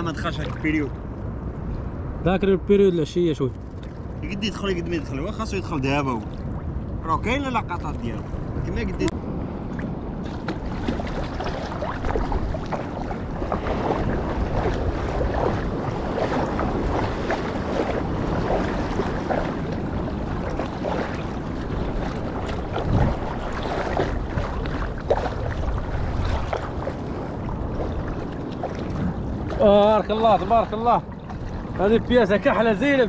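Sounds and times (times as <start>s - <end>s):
small waves splashing: 0.0s - 33.0s
wind buffeting microphone: 0.0s - 33.0s.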